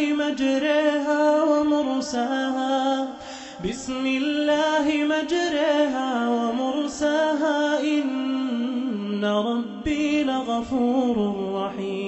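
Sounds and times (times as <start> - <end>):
man chanting melodically: 0.0 - 12.0.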